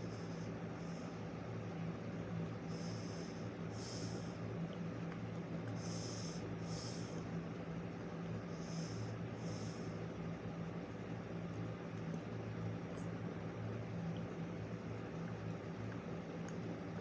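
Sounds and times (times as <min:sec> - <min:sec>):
steady low hum: 0:00.0 - 0:17.0
person breathing through nose: 0:02.7 - 0:04.4, 0:05.8 - 0:07.2, 0:08.5 - 0:10.0.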